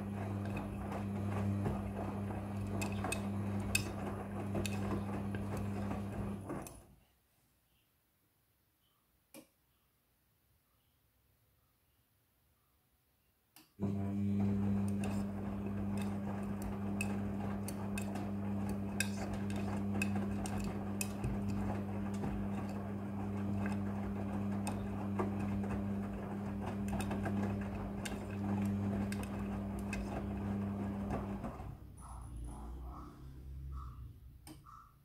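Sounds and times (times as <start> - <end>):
washing machine motor hum: 0.0 - 6.9, 13.8 - 34.9.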